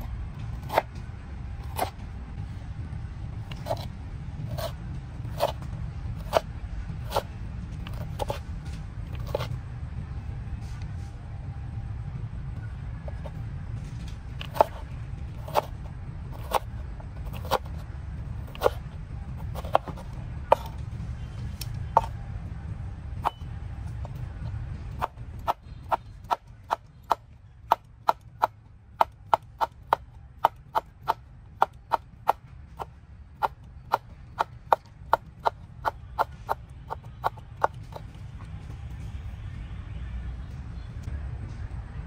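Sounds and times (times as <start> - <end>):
low background rumble: 0.0 - 42.0
sharp chopping strikes: 1.6 - 2.0, 4.5 - 8.4, 14.4 - 15.8, 16.4 - 17.8, 18.5 - 20.8, 24.0 - 38.2.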